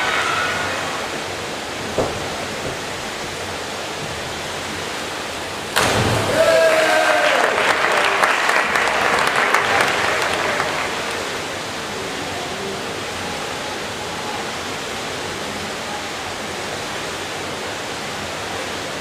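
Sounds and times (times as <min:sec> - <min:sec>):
rushing hiss of pool hall: 0:00.0 - 0:19.0
spectators applauding: 0:06.1 - 0:11.6.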